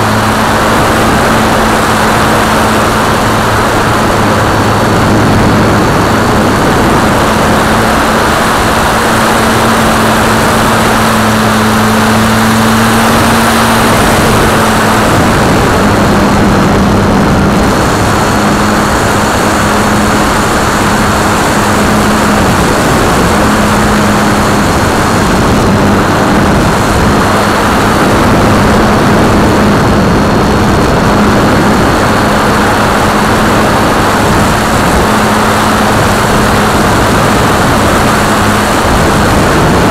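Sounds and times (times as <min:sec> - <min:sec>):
electric motor and propeller drone: 0:00.0 - 0:39.9
wind rush on microphone: 0:00.0 - 0:39.9.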